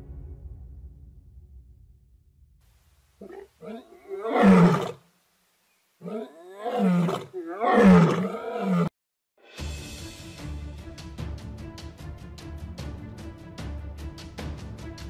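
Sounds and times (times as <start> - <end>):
lioness roaring: 3.2 - 5.0, 6.0 - 8.9.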